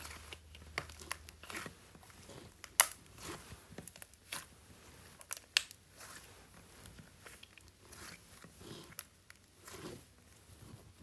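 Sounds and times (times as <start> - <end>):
slime crunching and popping: 0.0 - 6.3.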